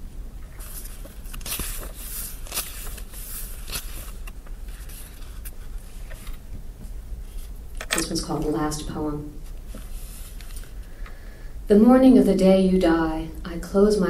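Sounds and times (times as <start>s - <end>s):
low steady hum: 0.0s - 14.0s
book pages rustling: 0.4s - 11.0s.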